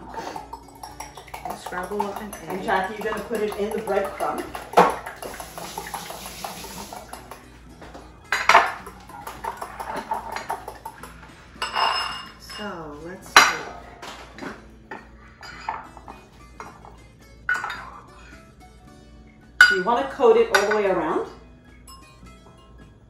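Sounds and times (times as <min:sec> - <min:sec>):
kitchen utensils clattering: 0:00.0 - 0:07.5, 0:08.3 - 0:18.1, 0:19.6 - 0:21.3
fork tapping glass bowl: 0:00.4 - 0:05.9, 0:08.3 - 0:12.3.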